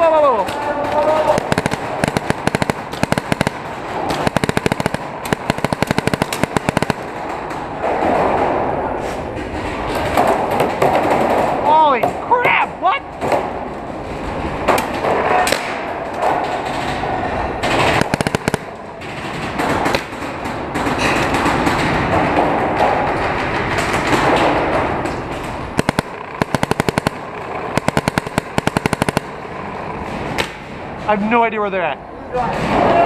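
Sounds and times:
paintball markers firing bursts: 0:00.4 - 0:07.3, 0:17.6 - 0:20.2, 0:25.4 - 0:29.6.

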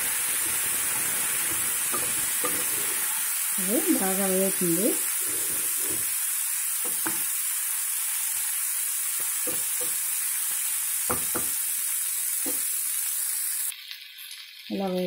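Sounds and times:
food sizzling in a pan: 0:00.0 - 0:15.0
spatula scraping and tapping pan: 0:00.2 - 0:03.2, 0:05.1 - 0:06.2, 0:06.8 - 0:07.3.

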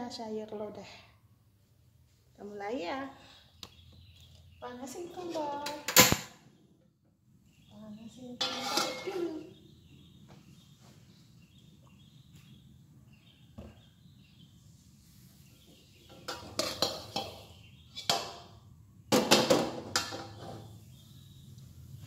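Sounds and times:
wok and metal ladle clattering: 0:08.4 - 0:09.5, 0:16.1 - 0:18.5, 0:19.1 - 0:20.8.

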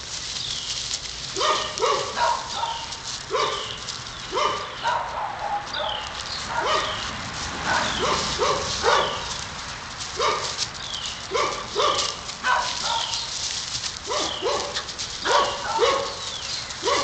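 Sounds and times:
dog barking: 0:01.4 - 0:09.3, 0:10.2 - 0:10.6, 0:11.3 - 0:13.3, 0:14.1 - 0:17.0.

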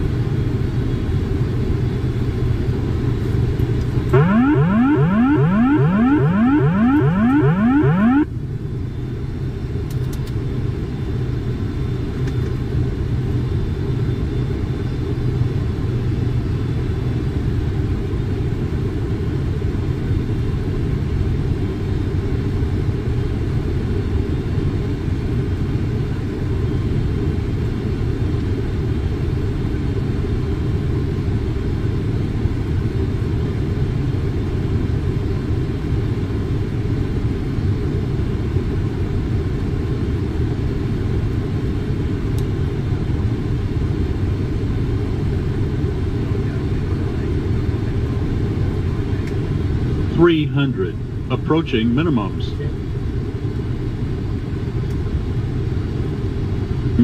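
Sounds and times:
airflow and engine rumble: 0:00.0 - 0:57.0
rising electronic tones: 0:04.2 - 0:08.3.

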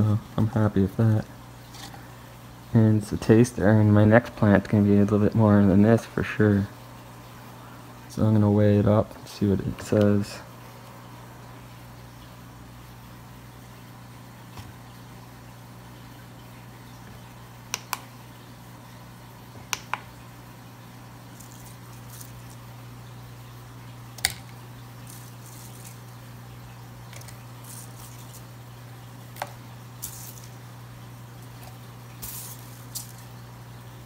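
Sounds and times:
steady low hum: 0:00.0 - 0:34.0
light rustling of buds: 0:21.3 - 0:22.8, 0:24.4 - 0:26.3, 0:27.1 - 0:28.7, 0:29.4 - 0:30.7, 0:31.4 - 0:33.4.

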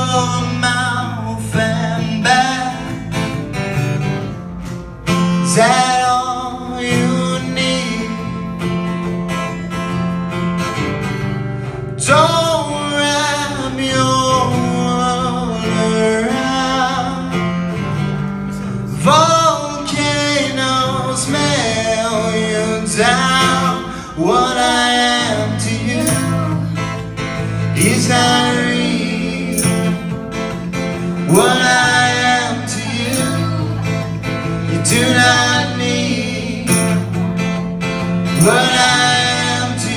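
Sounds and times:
man singing: 0:00.0 - 0:03.3, 0:05.4 - 0:08.6, 0:12.0 - 0:17.6, 0:18.5 - 0:30.4, 0:31.2 - 0:37.2, 0:38.3 - 0:39.9
acoustic guitar strumming: 0:00.0 - 0:39.9.

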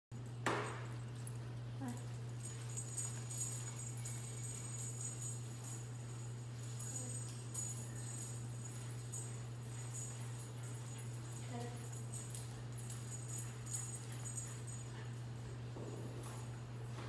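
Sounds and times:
dog collar jingling: 0:00.1 - 0:17.0
steady low hum: 0:00.1 - 0:17.0.

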